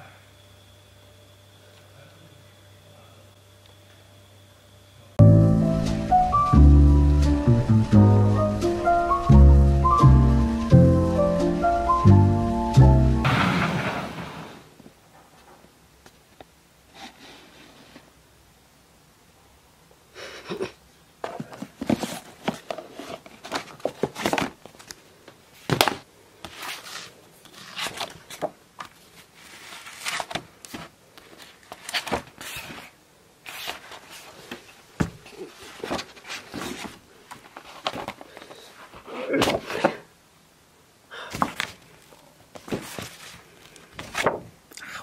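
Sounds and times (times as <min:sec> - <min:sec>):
paper rustling: 0:21.4 - 0:25.0, 0:25.6 - 0:39.9, 0:41.4 - 0:44.5.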